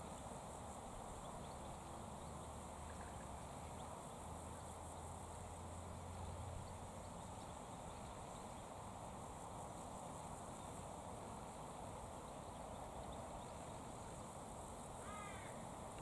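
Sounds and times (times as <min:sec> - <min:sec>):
steady hiss: 0:00.0 - 0:16.0
faint high ticks: 0:15.4 - 0:16.0.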